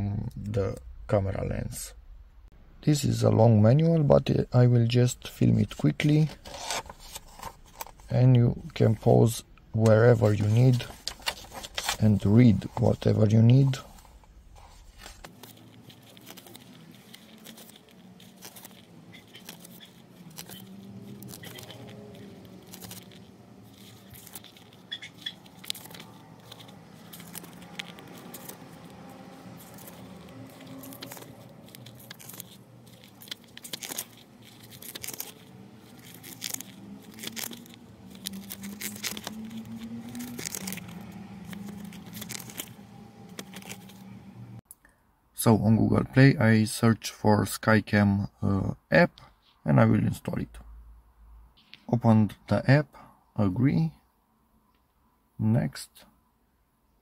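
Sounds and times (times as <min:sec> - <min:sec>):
paper pages rustling: 0:05.7 - 0:09.2, 0:09.8 - 0:44.2.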